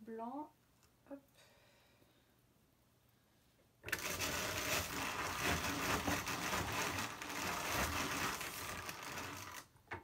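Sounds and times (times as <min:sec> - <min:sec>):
hand-cranked drum carder whirring: 0:03.9 - 0:09.6.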